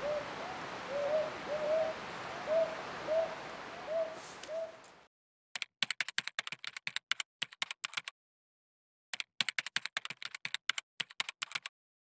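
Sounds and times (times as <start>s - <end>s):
keyboard key clicks: 9.2s - 11.7s.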